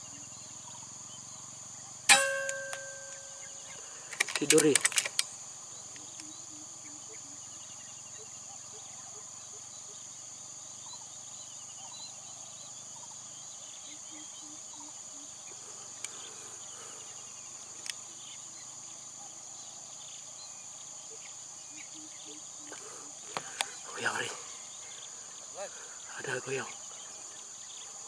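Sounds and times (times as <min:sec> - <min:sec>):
faint chirps: 0:00.0 - 0:28.0
insects droning: 0:00.0 - 0:28.0
sharp clicks: 0:04.1 - 0:05.3.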